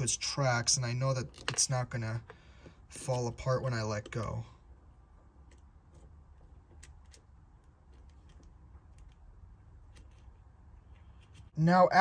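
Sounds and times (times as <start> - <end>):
low steady hum: 0.0 - 12.0
hex key clicking on screws: 5.4 - 10.4.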